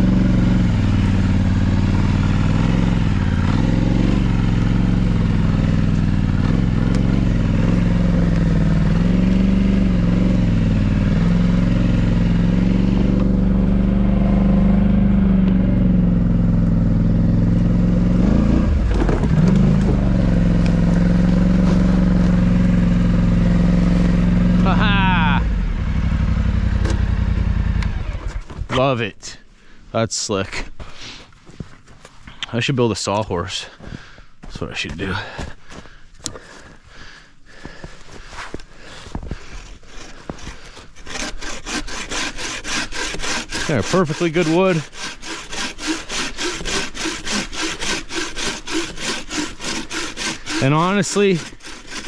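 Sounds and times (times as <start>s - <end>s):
atv engine running: 0.0s - 28.6s.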